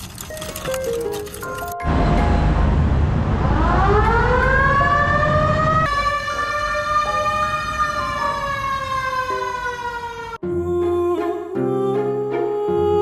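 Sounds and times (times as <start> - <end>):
low road rumble: 0.0 - 13.0
siren wailing: 3.3 - 10.4.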